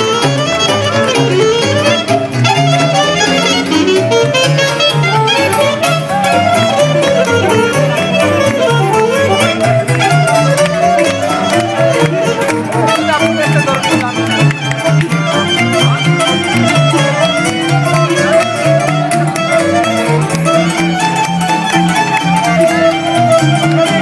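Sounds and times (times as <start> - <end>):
folk band dance music: 0.0 - 24.0
violin melody: 0.0 - 24.0.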